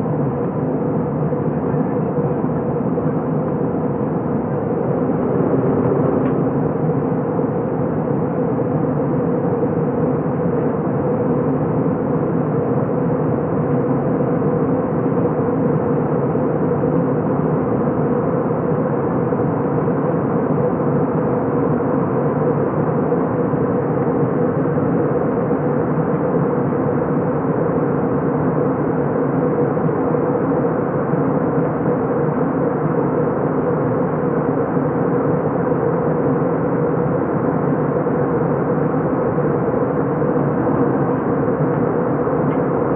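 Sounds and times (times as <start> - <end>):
steady cabin hum: 0.0 - 10.4, 32.0 - 42.9
jet engine drone: 0.0 - 42.9.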